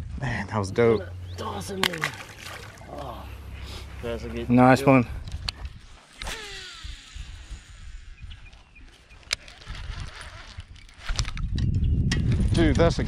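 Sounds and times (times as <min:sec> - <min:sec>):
low rumble: 0:00.0 - 0:08.7
fishing reel spool whirring: 0:05.8 - 0:11.0.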